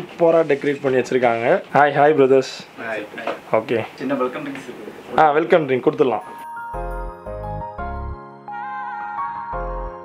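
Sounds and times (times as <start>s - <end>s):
instrumental background music: 5.9s - 10.0s.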